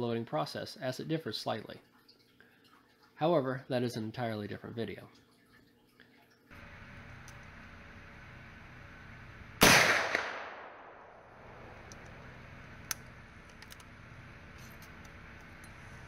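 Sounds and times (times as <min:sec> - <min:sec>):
gunshot: 0:09.6 - 0:11.2.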